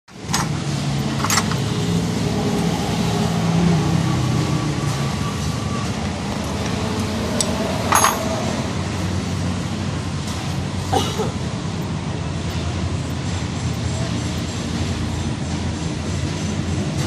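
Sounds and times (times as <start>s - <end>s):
vehicle engines humming: 0.1s - 17.0s
tools clinking in metal tray: 7.9s - 8.3s.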